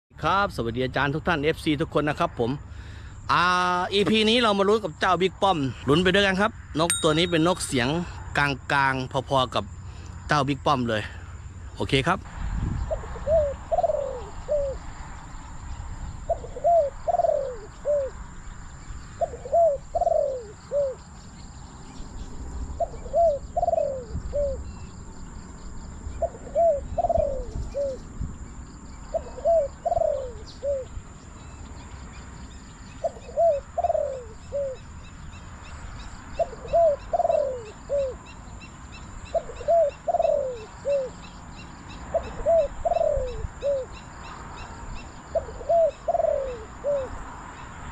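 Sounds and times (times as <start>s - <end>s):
small birds chirping: 0.2s - 47.9s
dove cooing: 12.9s - 14.9s, 16.2s - 18.2s, 19.1s - 21.0s, 22.8s - 24.8s, 26.1s - 28.1s, 29.1s - 31.0s, 33.0s - 34.9s, 36.4s - 38.3s, 39.3s - 41.4s, 42.0s - 44.0s, 45.3s - 47.2s.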